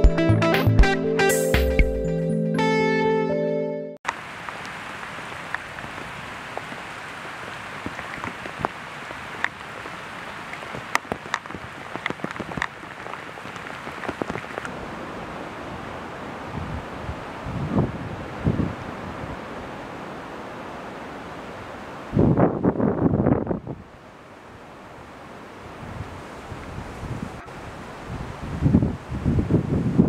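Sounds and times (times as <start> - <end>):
guitar music: 0.0 - 4.0
heavy rain on pond: 4.0 - 22.1.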